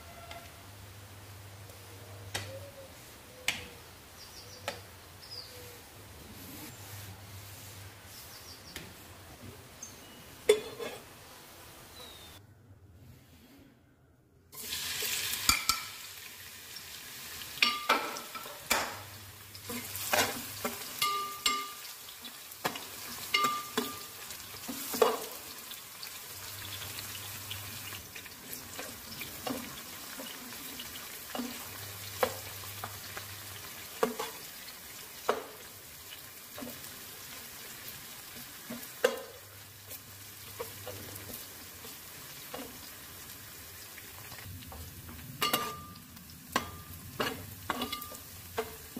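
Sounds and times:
metal spatula scraping pot: 0:10.5 - 0:11.1, 0:19.7 - 0:21.8, 0:45.4 - 0:46.0, 0:46.6 - 0:48.8
onions sizzling in hot oil: 0:14.6 - 0:48.9.

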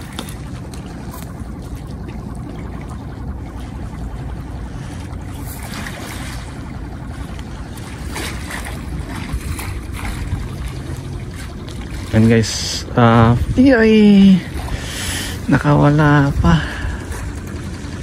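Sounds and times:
low steady rumble: 0:00.0 - 0:18.0
seawater lapping: 0:00.0 - 0:18.0.

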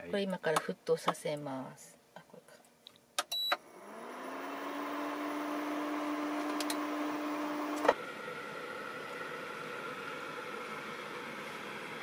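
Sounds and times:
induction cooktop humming: 0:03.4 - 0:12.0
higher-pitched steady hum: 0:07.1 - 0:12.0.

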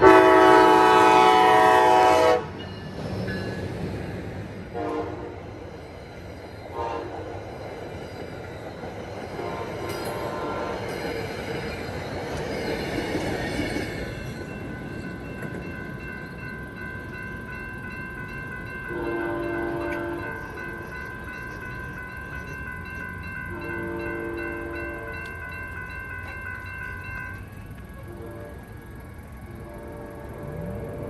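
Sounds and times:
train air horn blasts: 0:00.0 - 0:02.6, 0:04.7 - 0:05.5, 0:06.7 - 0:07.3, 0:09.4 - 0:10.8, 0:18.9 - 0:20.4, 0:23.5 - 0:25.2, 0:28.0 - 0:28.8, 0:29.5 - 0:30.7
crossing bells ringing: 0:00.0 - 0:31.0.

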